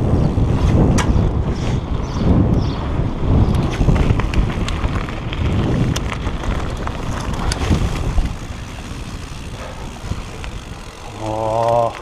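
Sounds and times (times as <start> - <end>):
bike tyres rumbling over ground: 0.0 - 12.0
wind buffeting microphone: 0.0 - 12.0
sharp clicks and rattles: 3.4 - 12.0.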